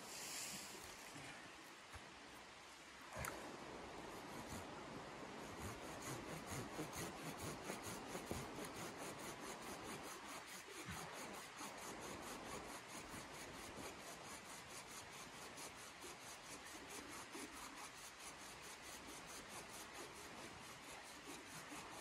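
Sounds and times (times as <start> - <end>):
hand saw cutting wood: 5.4 - 22.0.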